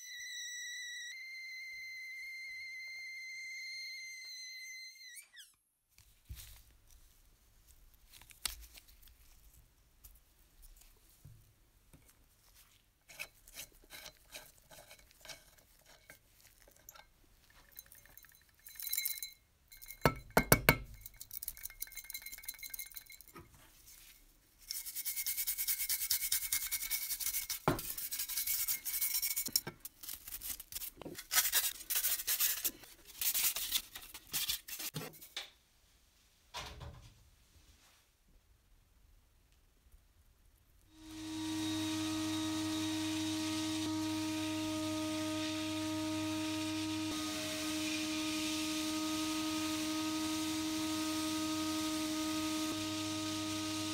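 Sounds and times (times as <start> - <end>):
sandblaster hissing: 41.0 - 53.8.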